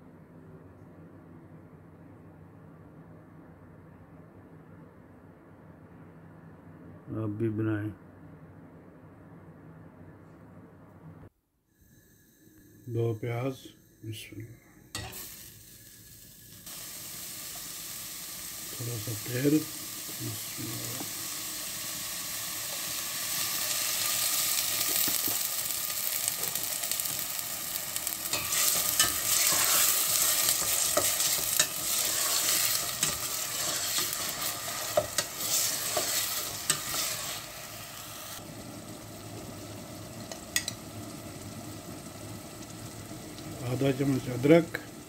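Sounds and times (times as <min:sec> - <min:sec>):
onions sizzling in oil: 0:14.9 - 0:45.0
spatula scraping pot: 0:28.3 - 0:37.5.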